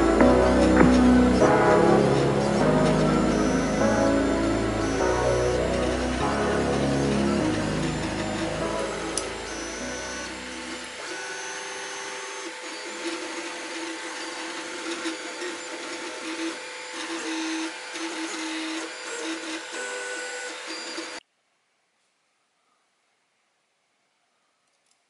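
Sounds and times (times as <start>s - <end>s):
printer motors whining: 0.0s - 21.2s.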